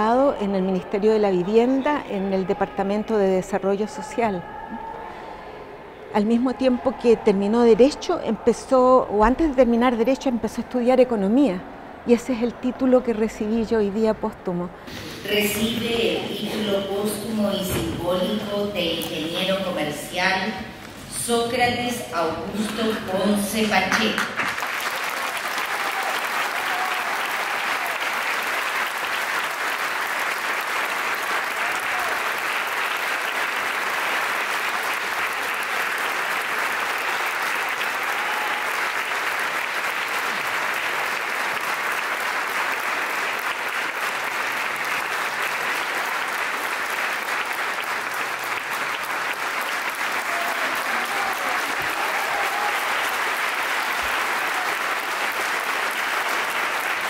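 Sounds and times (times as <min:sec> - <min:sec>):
audience applauding: 0:22.6 - 0:57.0.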